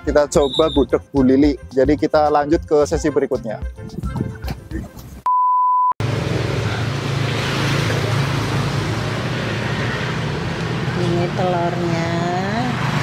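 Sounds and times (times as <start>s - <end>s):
short electronic beep: 0.4s - 0.9s, 5.3s - 6.0s
road traffic hiss and hum: 6.0s - 13.0s.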